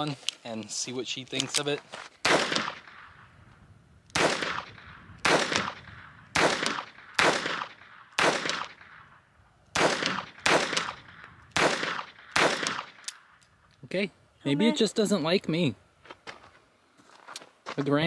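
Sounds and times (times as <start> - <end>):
pistol shots with echo: 2.2 - 3.3, 4.1 - 9.1, 9.8 - 13.3.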